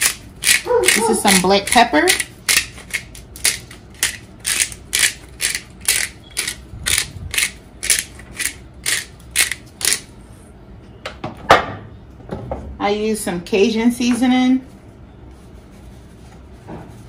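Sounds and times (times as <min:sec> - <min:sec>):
pepper grinder crunching: 0:00.0 - 0:10.1.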